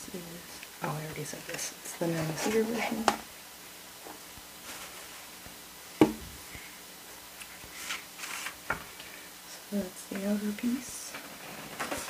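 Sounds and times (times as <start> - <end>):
knock on wooden table: 6.0 - 6.2
cardboard sliding and rubbing: 7.8 - 8.6.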